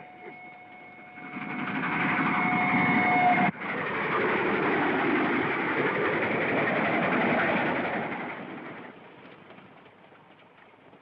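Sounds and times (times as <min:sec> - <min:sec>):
steam train whistle: 0:00.0 - 0:01.5, 0:02.3 - 0:03.5
train rattling on rails: 0:00.0 - 0:10.8.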